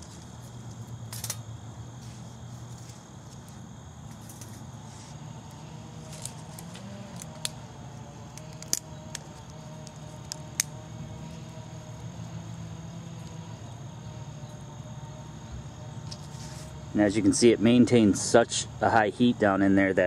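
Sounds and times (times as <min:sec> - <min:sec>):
steady low hum: 0:00.0 - 0:20.0
stick crackling and popping: 0:06.0 - 0:10.8.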